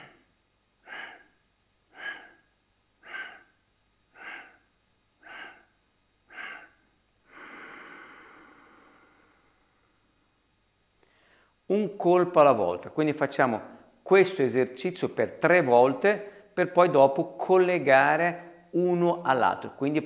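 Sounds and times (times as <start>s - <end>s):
man exhaling sharply: 0.0s - 2.4s, 3.0s - 3.6s, 4.2s - 4.6s, 6.3s - 9.7s.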